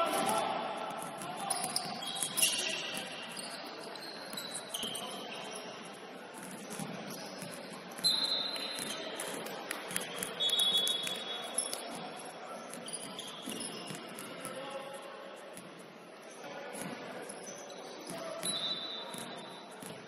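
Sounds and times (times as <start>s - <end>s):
echoing basketball game noise: 0.0s - 20.0s
referee's whistle blasts: 8.0s - 9.0s, 10.4s - 11.5s, 18.4s - 19.6s.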